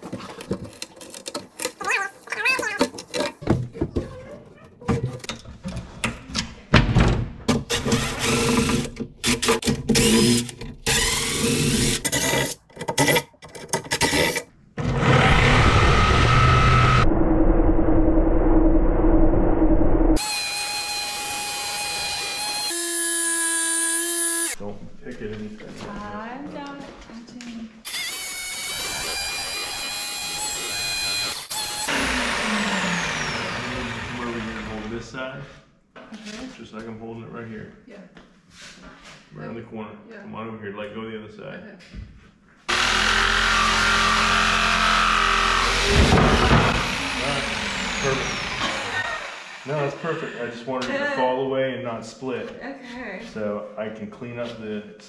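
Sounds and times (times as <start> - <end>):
jigsaw cutting wood panel: 7.6 - 17.0, 27.9 - 35.0, 42.7 - 50.3
cordless impact driver: 7.7 - 12.5, 42.7 - 49.9.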